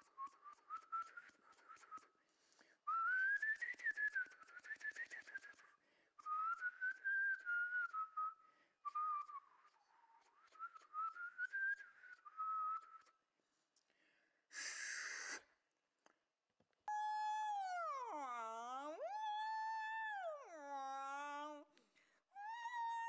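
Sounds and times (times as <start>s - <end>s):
short hissing burst: 14.6s - 15.5s.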